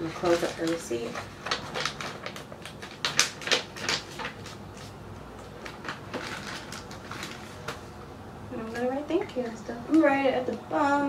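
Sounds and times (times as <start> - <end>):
paper rustling and crinkling: 0.0 - 7.9.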